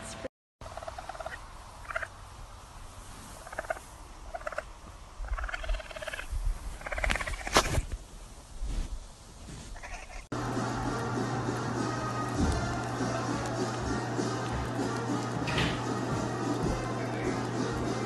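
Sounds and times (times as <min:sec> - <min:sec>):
baby raccoon chittering: 0:05.2 - 0:07.5.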